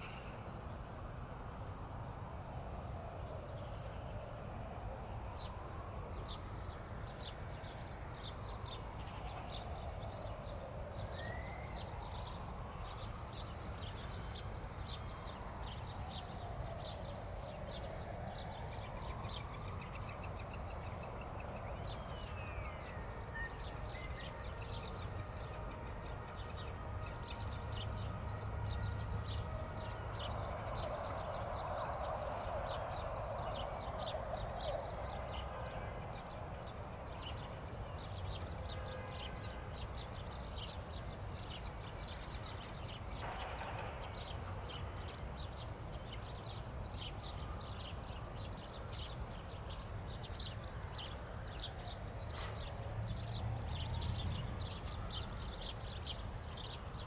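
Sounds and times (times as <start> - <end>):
far-off traffic rumble: 0.0 - 57.0.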